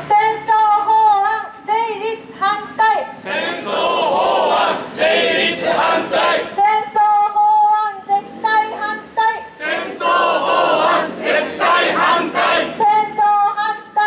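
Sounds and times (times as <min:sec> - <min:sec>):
protesters singing in unison: 0:03.0 - 0:07.4, 0:08.1 - 0:14.0.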